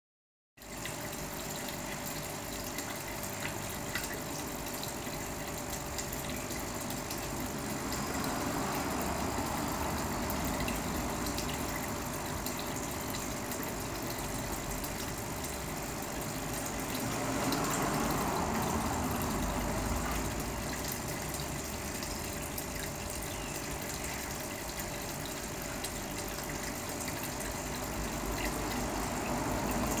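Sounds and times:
fish tank water circulating: 0.6 - 30.0
pump running: 0.6 - 30.0.

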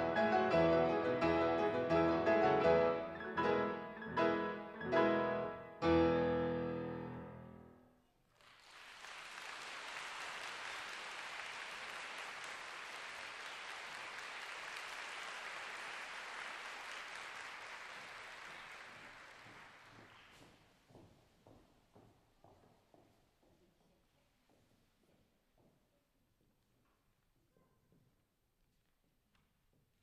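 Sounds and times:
pianos playing chords: 0.0 - 7.8
audience applauding: 8.3 - 20.5.

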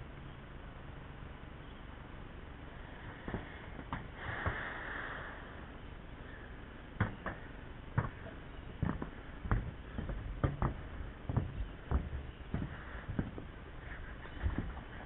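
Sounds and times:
short breathy hiss: 2.8 - 6.6
footsteps on metal roof: 7.0 - 15.0.

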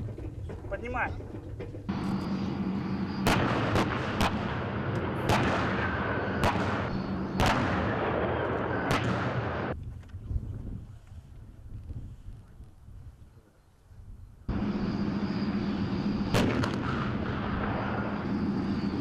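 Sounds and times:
tank engines running: 0.0 - 9.8, 14.4 - 19.0
sharp gunshots: 3.1 - 9.8, 16.3 - 18.2.

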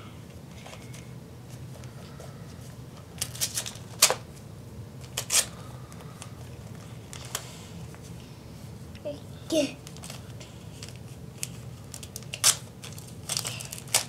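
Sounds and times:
wrapping paper ripping: 9.8 - 14.0.

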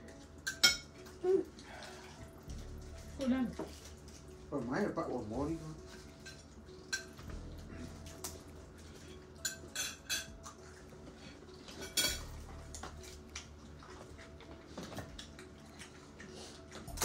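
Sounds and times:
plates and cutlery clinking: 0.4 - 1.1, 5.8 - 7.3, 9.0 - 10.5, 11.1 - 13.0.

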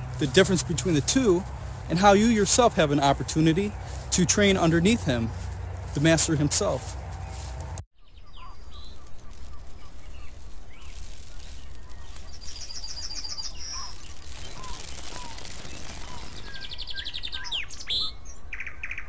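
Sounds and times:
steady low rumble: 0.0 - 7.8
birds chirping: 0.0 - 19.0
rapid high bird trill: 0.0 - 19.0.

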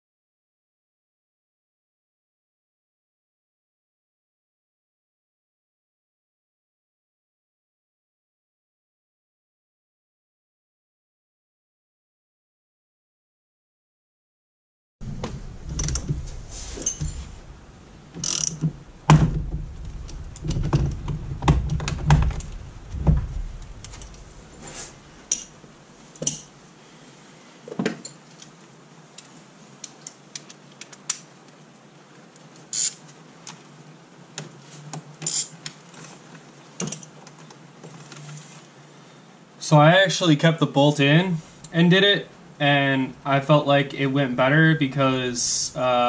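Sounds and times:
low thumps: 15.0 - 25.6
ratchet clicks: 18.2 - 18.6, 32.7 - 33.0, 35.2 - 35.5
metal tool clunks: 26.2 - 26.5.

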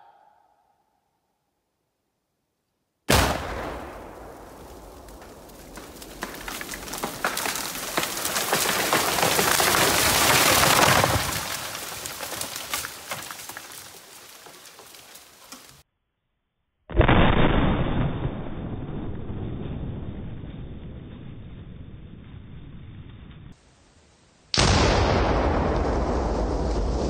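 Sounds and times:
loud explosion blast: 3.1 - 5.8, 16.9 - 22.5, 24.6 - 27.0
branches snapping and debris falling: 4.5 - 15.8.

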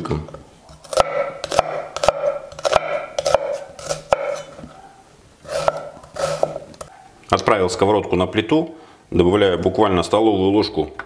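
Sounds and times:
knife dicing onion on board: 0.7 - 4.6, 5.5 - 6.7.

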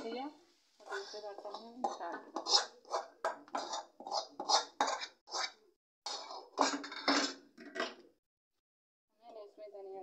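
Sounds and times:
metal spoon scraping metal pan: 0.8 - 7.4.

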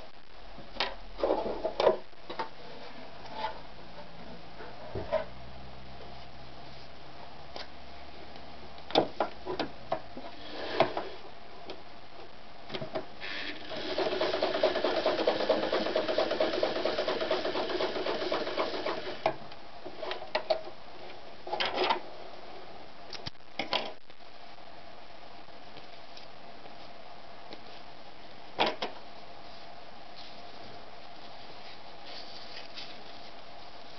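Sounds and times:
sewing machine stitching: 13.2 - 19.3.

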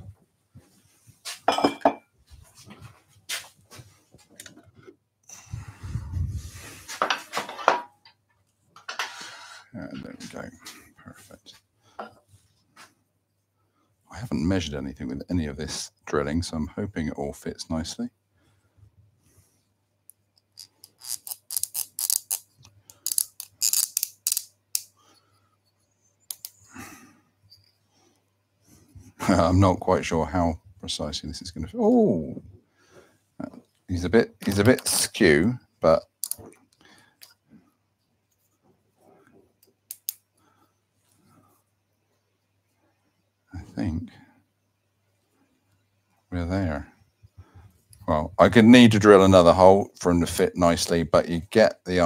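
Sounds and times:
tools clinking and clattering: 1.5 - 2.0, 7.0 - 8.2.

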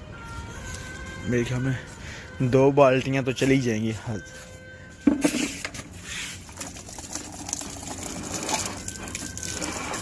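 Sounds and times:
water splashing into plastic bucket: 6.4 - 10.0.

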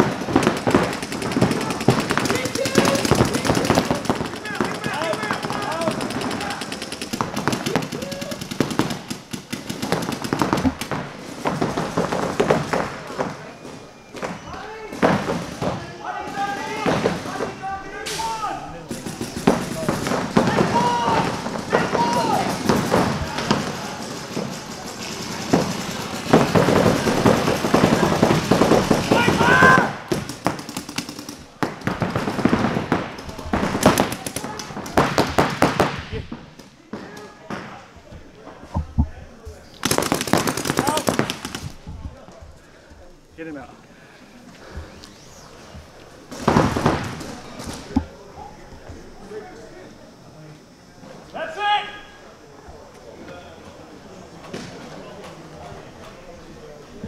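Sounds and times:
paintball markers firing: 39.8 - 41.8.

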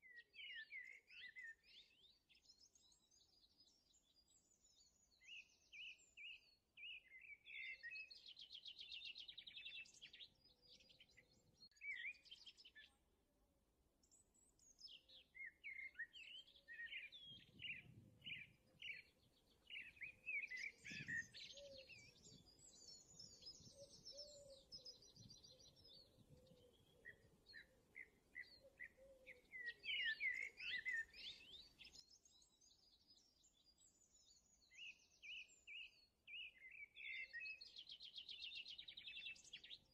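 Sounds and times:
birdsong chirps and trills: 14.1 - 39.9.

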